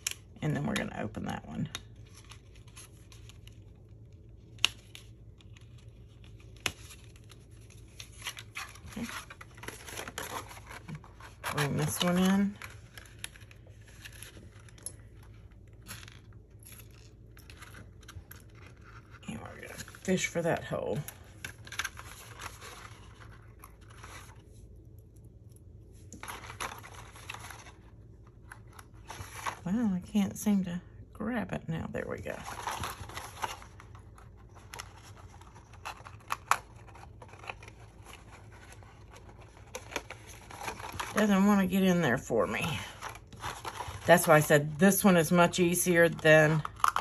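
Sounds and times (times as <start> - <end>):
stiff cardstock rustling: 4.5 - 24.6, 26.0 - 29.7, 32.4 - 47.0.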